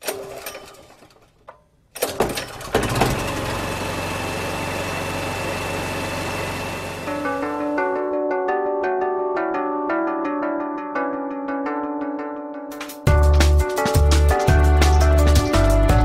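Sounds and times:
sudden clunk: 1.5 - 3.3
motor running with whine: 3.0 - 7.8
plucked harp-like music: 7.1 - 16.0.

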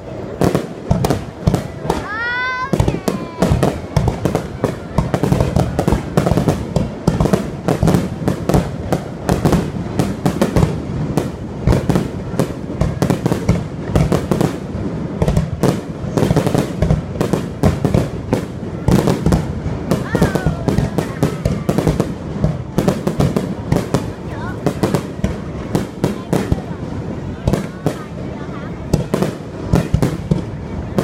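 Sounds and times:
fireworks bangs and crackles: 0.0 - 31.0.

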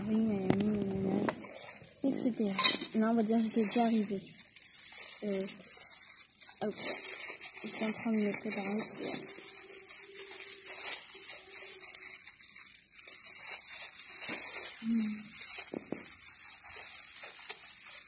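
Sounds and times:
plastic gloves rustling: 0.0 - 18.0
person humming: 14.8 - 15.3.

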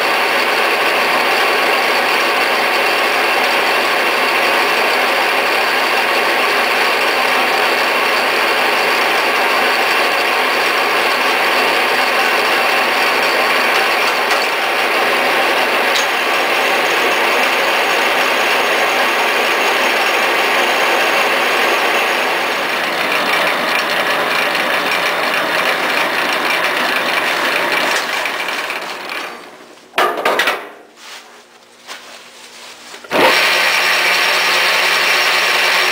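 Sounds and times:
drill press cutting wood: 0.0 - 29.6, 33.0 - 35.9.

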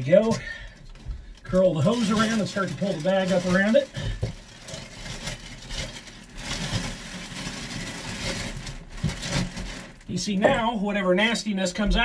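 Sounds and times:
plastic bag rustling and crinkling: 0.0 - 12.0.

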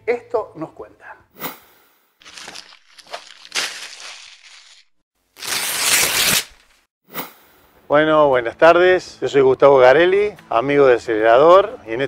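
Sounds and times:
paper crinkling and crackling: 2.2 - 6.8.

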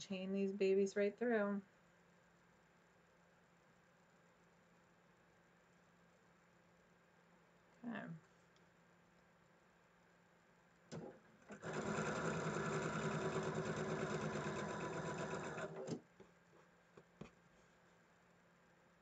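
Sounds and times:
sewing machine stitching: 11.0 - 16.0.

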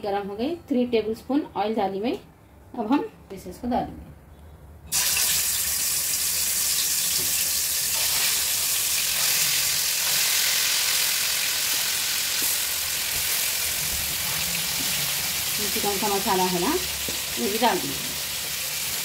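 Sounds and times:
chicken sizzling in hot oil: 4.9 - 19.0.

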